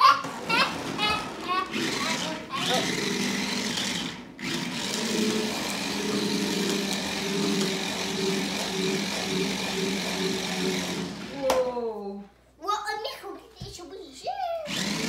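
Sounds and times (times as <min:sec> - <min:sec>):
toy car electric motors whirring: 0:00.0 - 0:11.4, 0:14.6 - 0:15.0.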